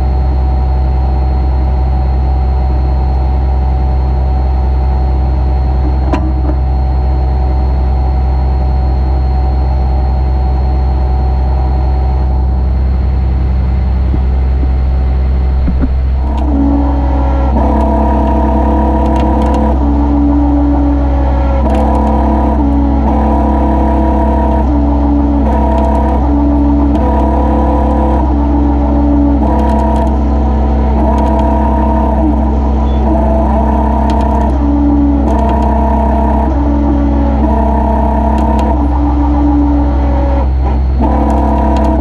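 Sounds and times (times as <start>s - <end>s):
truck engine idling: 9.0s - 42.0s.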